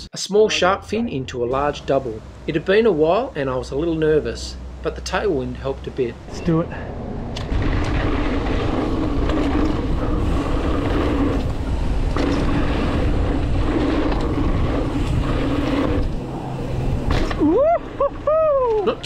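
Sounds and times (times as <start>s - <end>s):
bike tyres rolling on dirt: 1.6s - 19.0s
wind on microphone: 6.2s - 19.0s.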